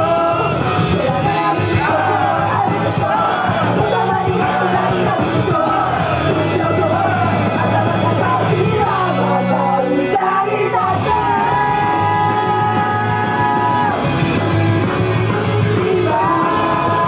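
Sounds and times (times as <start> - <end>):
women singing into microphones: 0.0 - 14.1, 15.7 - 17.0
loud live rock music: 0.0 - 17.0.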